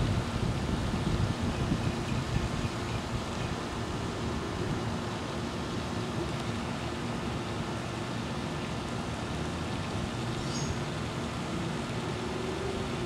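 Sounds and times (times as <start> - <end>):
background rumble and hiss: 0.0 - 13.0
faint humming tones: 0.0 - 13.0.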